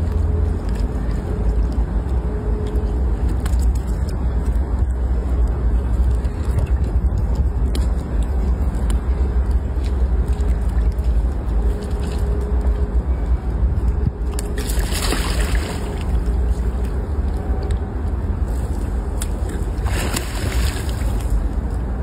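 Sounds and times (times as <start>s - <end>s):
water splashing: 14.5s - 16.3s, 19.2s - 21.5s.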